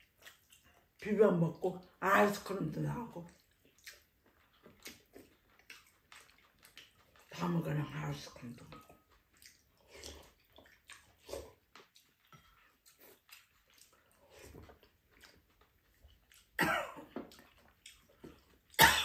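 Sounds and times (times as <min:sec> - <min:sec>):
slurping soup from spoons: 0:09.8 - 0:11.6.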